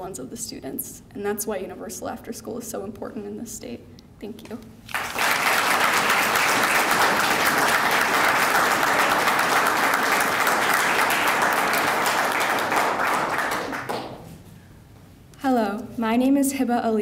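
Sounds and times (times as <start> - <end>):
audience applauding: 4.9 - 14.3.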